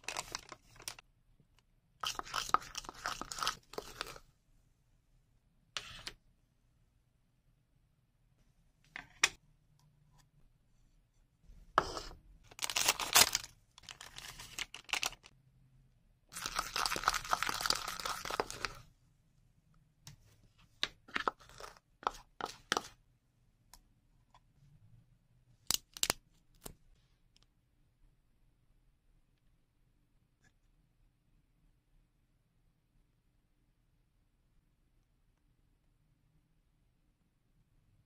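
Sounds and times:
spoon stirring batter in bowl: 0:02.0 - 0:04.3, 0:11.6 - 0:12.2, 0:16.3 - 0:18.9, 0:20.1 - 0:23.0
foil sachet tearing: 0:12.6 - 0:15.3, 0:16.4 - 0:18.8.

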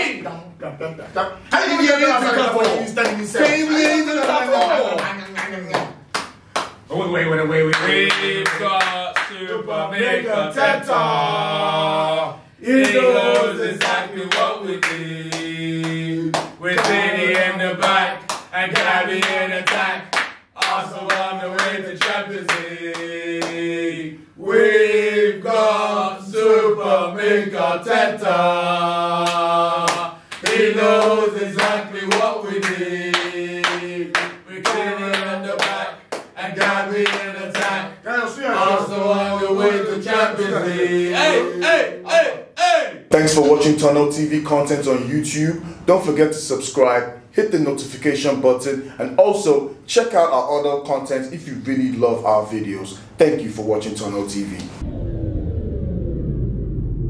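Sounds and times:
men singing a chant: 0:01.5 - 0:05.0, 0:07.0 - 0:45.9
people clapping: 0:02.5 - 0:06.9, 0:07.7 - 0:09.6, 0:12.8 - 0:23.6, 0:29.2 - 0:37.8.

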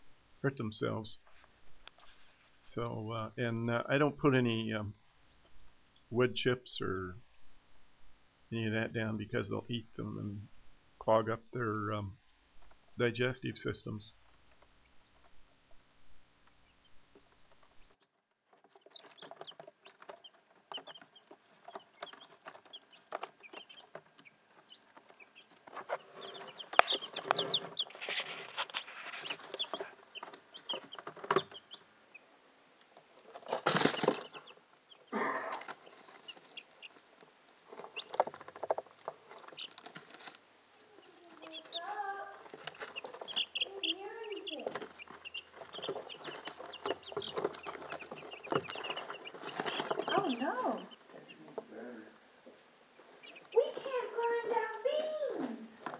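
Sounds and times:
chicks peeping and chirping: 0:16.4 - 0:32.3, 0:32.9 - 0:51.7, 0:52.9 - 0:54.8.

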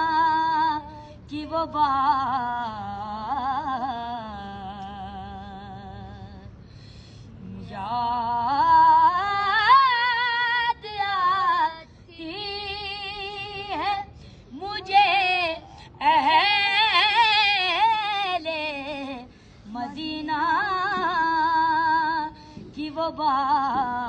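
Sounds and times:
boy singing unaccompanied: 0:07.6 - 0:24.0.

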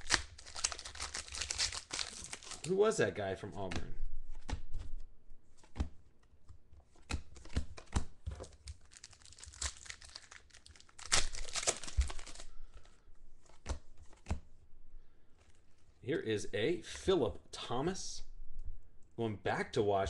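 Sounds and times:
cards clicking and rustling: 0:00.0 - 0:02.8, 0:03.6 - 0:14.5
foil wrappers crinkling and tearing: 0:00.0 - 0:02.8, 0:08.4 - 0:13.0.

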